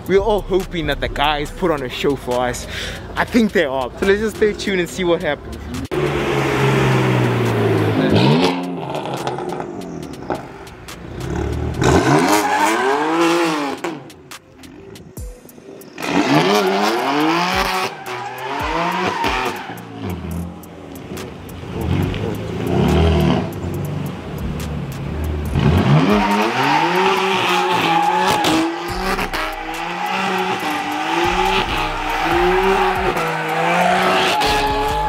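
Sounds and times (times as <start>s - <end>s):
car engine revving: 5.4s - 15.1s, 15.8s - 35.0s
tyre squeal: 16.0s - 20.5s, 25.8s - 35.0s.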